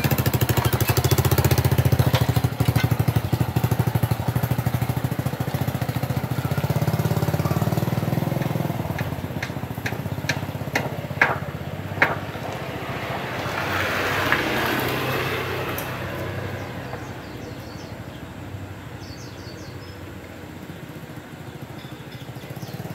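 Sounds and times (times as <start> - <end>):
motorcycle engine running: 0.0 - 22.9.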